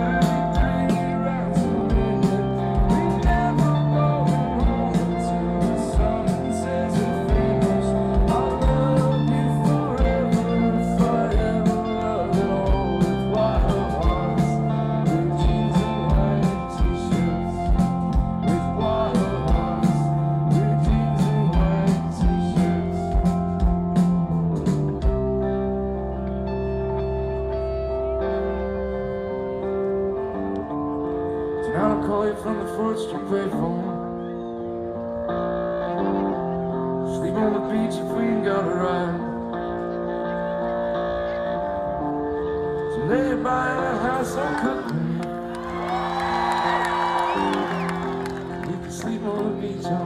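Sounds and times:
steady drum beat: 0:00.0 - 0:25.4
electric guitars and bass: 0:00.0 - 0:50.0.

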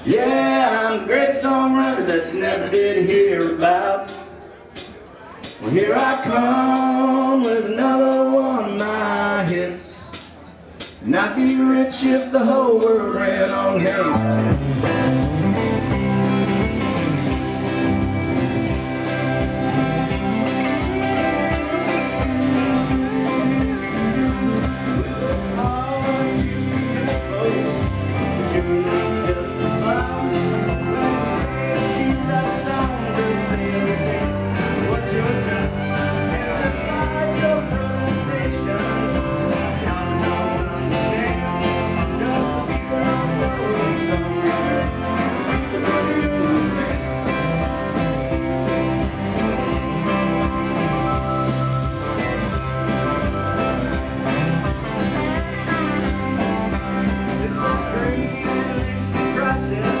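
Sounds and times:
electric guitars: 0:00.0 - 0:10.1, 0:10.9 - 1:00.0
country band playing: 0:00.0 - 1:00.0
pedal steel guitar: 0:13.6 - 1:00.0.

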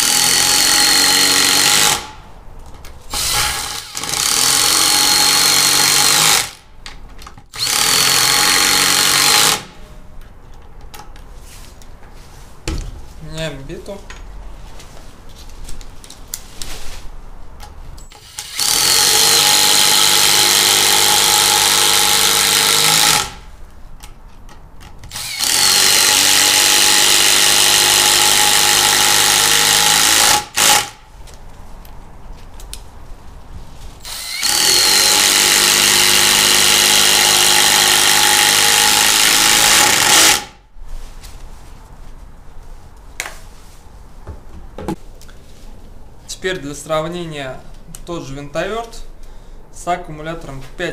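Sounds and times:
impact driver hammering screws: 0:00.0 - 0:02.2, 0:03.1 - 0:06.6, 0:07.5 - 0:09.8, 0:18.1 - 0:23.4, 0:25.0 - 0:31.0, 0:34.0 - 0:40.5.

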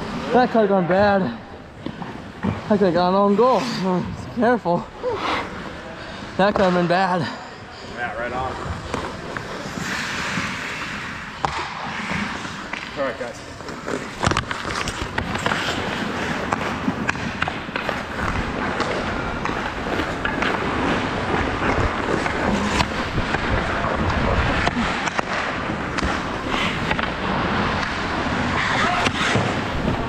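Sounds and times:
skates scraping on ice: 0:00.0 - 0:30.0
hockey sticks clacking: 0:08.2 - 0:30.0.

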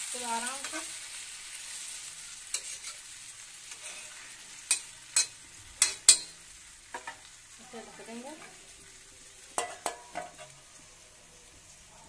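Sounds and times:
food sizzling in oil: 0:00.0 - 0:12.0
metal spatula scraping a pan: 0:00.2 - 0:07.2, 0:09.6 - 0:10.7.

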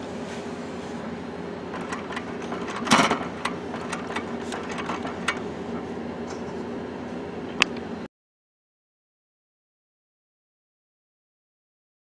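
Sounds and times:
printer motor hum: 0:00.0 - 0:08.1.

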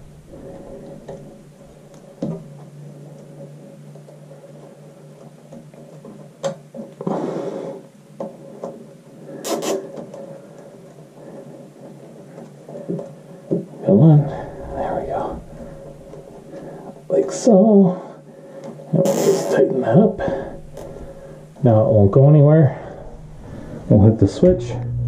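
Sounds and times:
faint steady hum: 0:00.0 - 0:25.0
zip tie ratcheting: 0:09.4 - 0:09.8.

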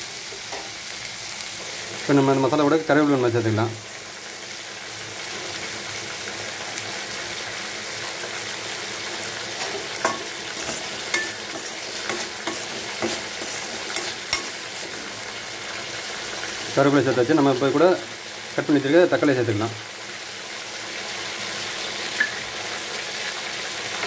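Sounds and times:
vegetables sizzling in hot oil: 0:00.0 - 0:24.0
metal spatula scraping a pan: 0:09.4 - 0:15.3
spatula clinking against pan: 0:09.6 - 0:14.7.

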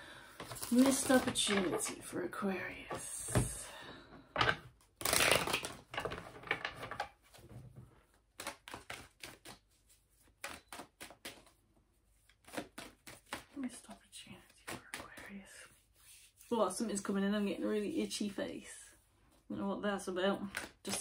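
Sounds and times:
cards being shuffled: 0:00.4 - 0:02.0, 0:05.0 - 0:07.4, 0:08.3 - 0:11.6, 0:12.2 - 0:15.3
light taps and flicks of cards: 0:10.4 - 0:11.5.

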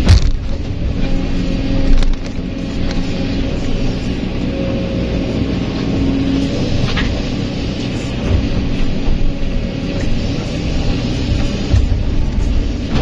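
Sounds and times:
dirt thumping into truck bed: 0:00.0 - 0:00.8
excavator diesel engine running: 0:00.0 - 0:13.0
hydraulics working: 0:00.0 - 0:13.0.

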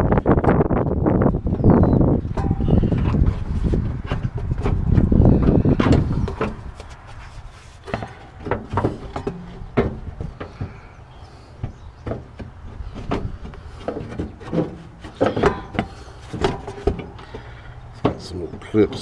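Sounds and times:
plastic shroud knocks and scrapes: 0:11.7 - 0:17.2.

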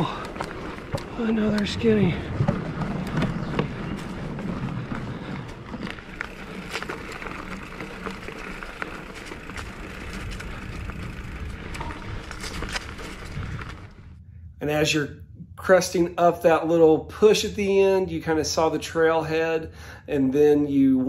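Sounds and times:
bike clicks and rattles: 0:00.0 - 0:14.2
mountain bike tyre and drivetrain noise: 0:00.0 - 0:14.2.

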